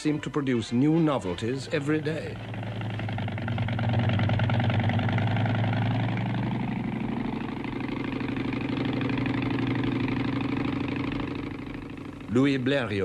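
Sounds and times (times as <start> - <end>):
piston engine running: 0.0 - 13.0.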